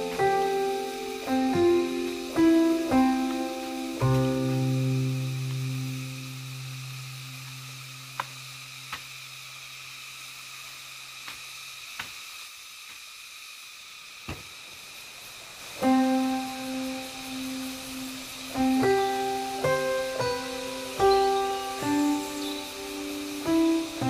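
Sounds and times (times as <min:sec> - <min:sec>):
instrumental music: 0:00.0 - 0:07.5, 0:15.8 - 0:24.0.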